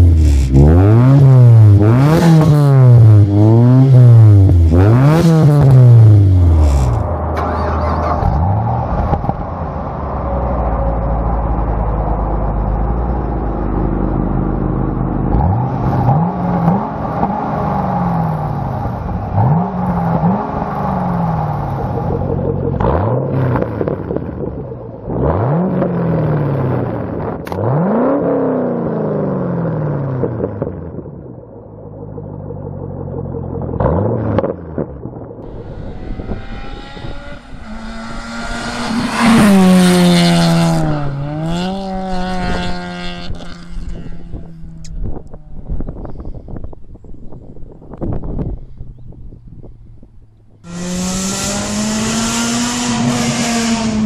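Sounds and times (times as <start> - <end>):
second car engine revving high: 0.0 - 9.4, 35.4 - 45.4, 50.6 - 54.0
car engine revving: 0.0 - 31.1, 32.1 - 46.2, 50.5 - 54.0.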